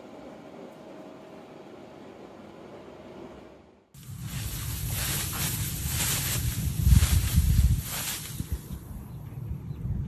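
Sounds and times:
wind buffeting microphone: 4.0s - 10.0s.

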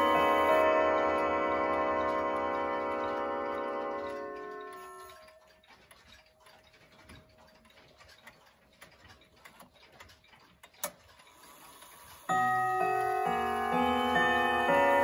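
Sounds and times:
clock chime rods ringing: 0.0s - 5.8s, 12.2s - 15.0s
clock mechanism ticking: 0.0s - 15.0s.

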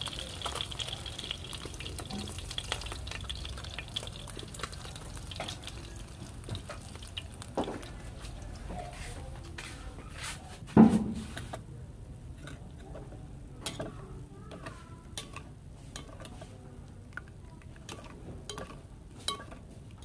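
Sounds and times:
clicks and clinks of hard objects: 17.2s - 20.0s.

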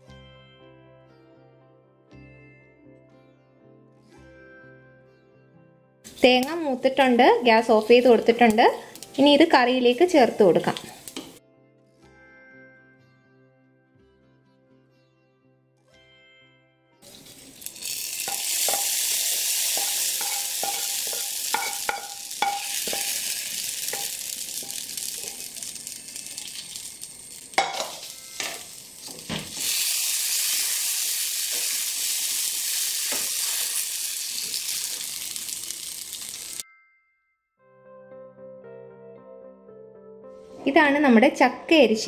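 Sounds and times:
hot oil sizzling in pot: 6.1s - 11.4s, 17.0s - 36.6s
spoon knocking against enamel pot: 18.3s - 19.0s, 19.7s - 23.3s, 27.6s - 28.6s.

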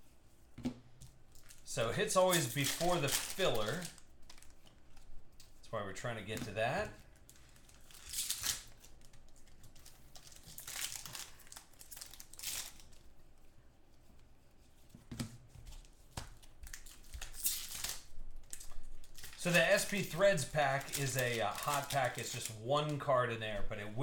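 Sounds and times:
cards rustling: 1.0s - 13.1s, 15.6s - 24.0s
foil wrappers tearing and crinkling: 1.3s - 5.5s, 6.3s - 13.1s, 16.6s - 23.0s.

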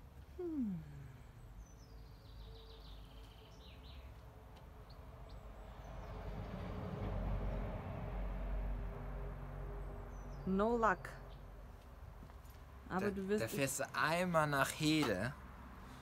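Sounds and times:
songbird singing: 0.1s - 6.6s, 9.9s - 12.2s.

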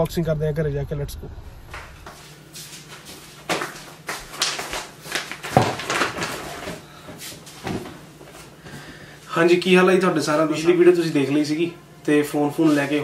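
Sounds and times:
footsteps: 1.7s - 9.0s
shopping bag rustling: 4.3s - 8.0s
bag knocking on table: 5.4s - 6.7s.

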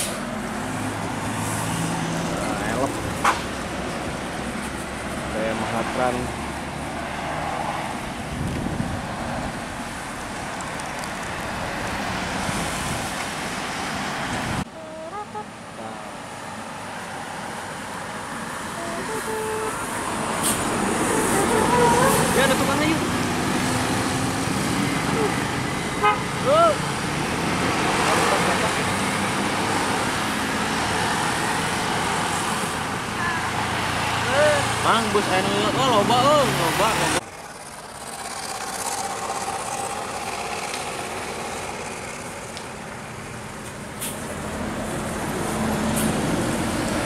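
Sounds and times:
road traffic passing: 0.0s - 47.0s
tyres on asphalt: 0.0s - 47.0s
vehicle engines running: 16.8s - 47.0s.

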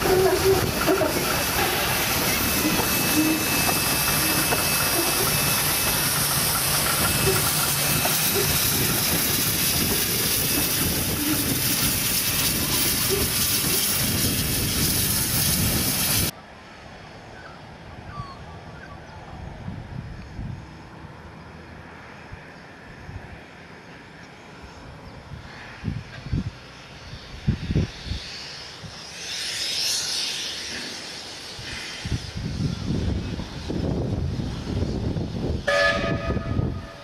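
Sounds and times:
steam hissing from locomotive: 0.0s - 16.4s, 25.4s - 37.0s.

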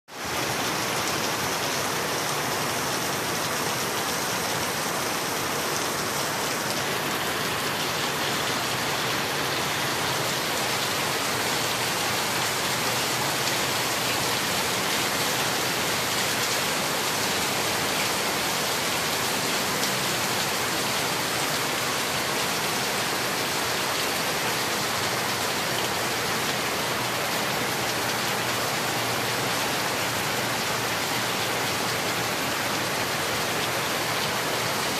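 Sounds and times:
heavy rain on concrete and metal: 0.1s - 34.9s.

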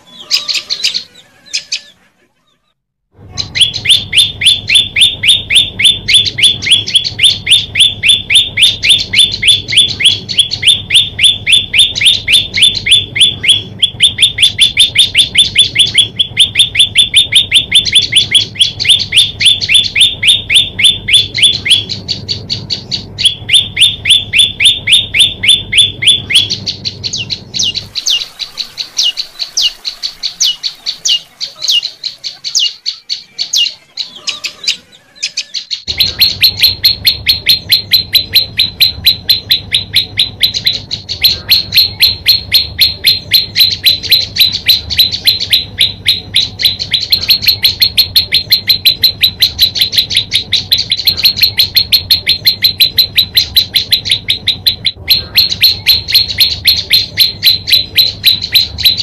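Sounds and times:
songbird high chip notes: 3.3s - 59.0s.

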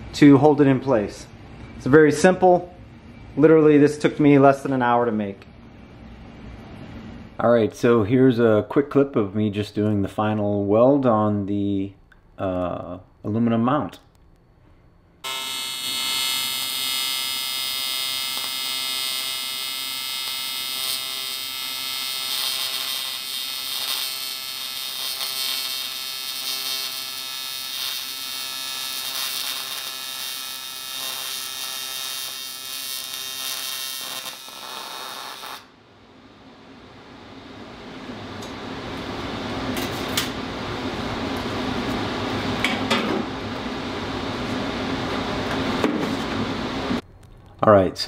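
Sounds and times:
welding arc buzzing: 15.2s - 35.7s.

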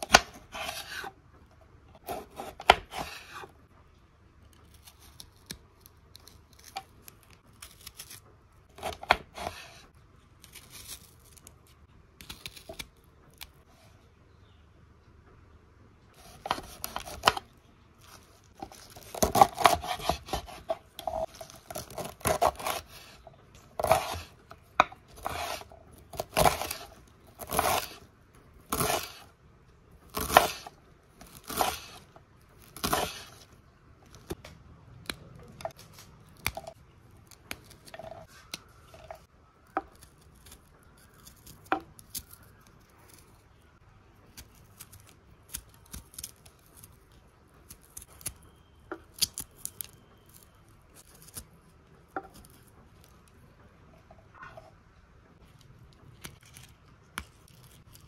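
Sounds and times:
knife chopping on wooden board: 19.0s - 23.2s, 23.8s - 25.6s, 26.2s - 28.0s, 28.7s - 29.2s, 30.2s - 30.7s, 31.4s - 32.0s, 32.8s - 33.3s.

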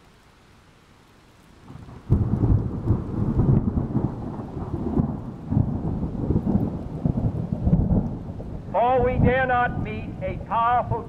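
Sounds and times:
thunder rumbling: 1.6s - 11.0s.

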